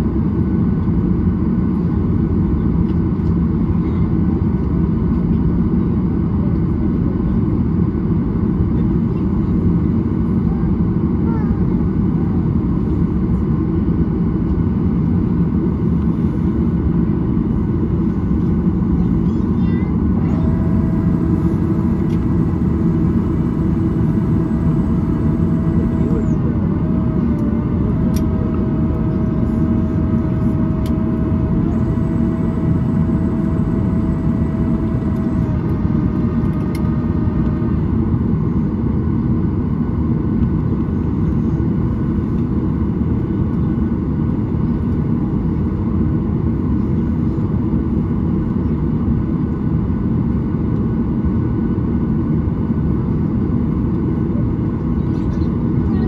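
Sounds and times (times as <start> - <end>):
airplane cabin rumble: 0.0 - 56.0
thin steady whine: 18.9 - 38.7.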